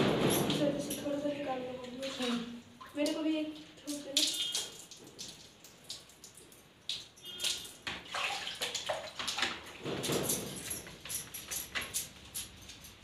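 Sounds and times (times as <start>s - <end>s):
water splashing on concrete: 1.8s - 10.4s.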